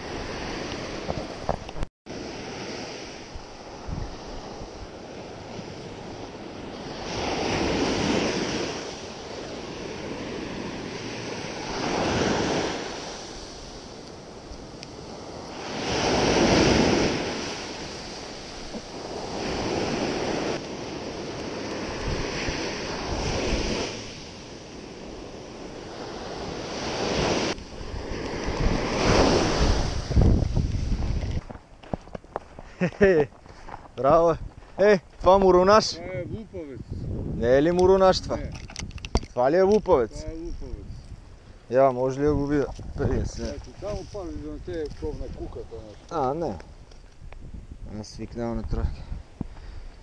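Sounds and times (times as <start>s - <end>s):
small waves breaking on beach: 0.0s - 31.4s
wind buffeting microphone: 2.6s - 50.0s.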